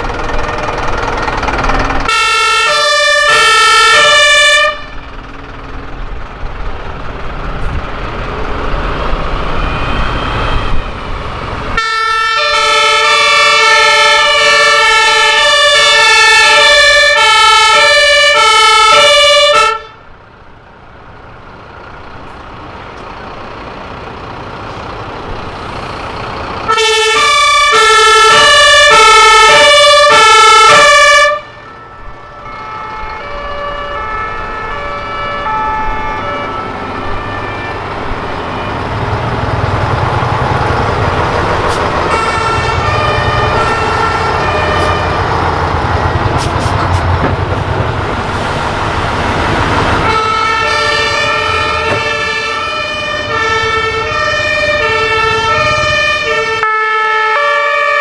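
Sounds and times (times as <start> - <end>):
heavy truck engine rumble: 0.0 - 58.0
two-tone fire engine sirens: 0.0 - 58.0.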